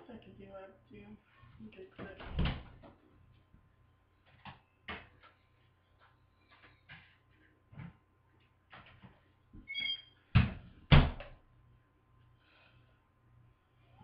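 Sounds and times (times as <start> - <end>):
brief squeak: 9.7 - 10.2.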